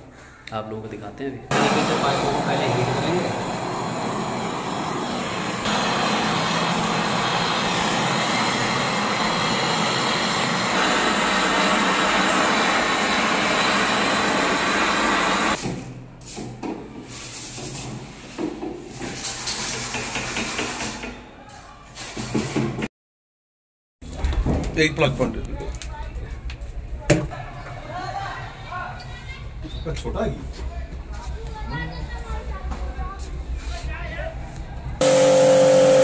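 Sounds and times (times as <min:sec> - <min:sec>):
brazing torch hissing: 0:01.5 - 0:15.6.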